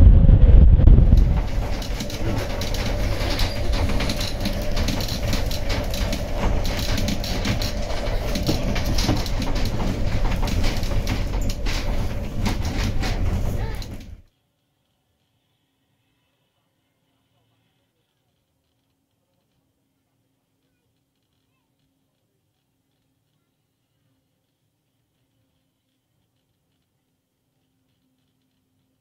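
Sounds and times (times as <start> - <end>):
tram wheels rattling over rails: 0.0 - 14.3.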